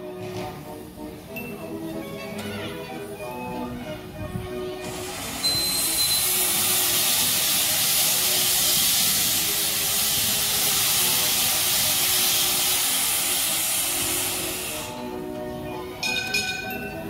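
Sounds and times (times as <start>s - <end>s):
steam locomotive hissing steam: 4.5s - 15.3s.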